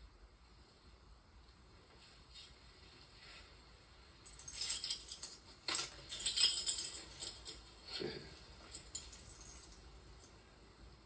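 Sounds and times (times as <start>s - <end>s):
metallic jingling and rattling: 4.2s - 7.8s, 8.5s - 10.4s.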